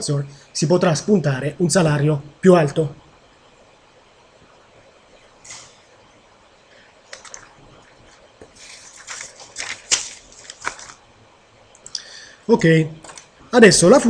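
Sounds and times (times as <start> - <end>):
paper rustling and crackling: 7.1 - 11.1, 13.0 - 13.3.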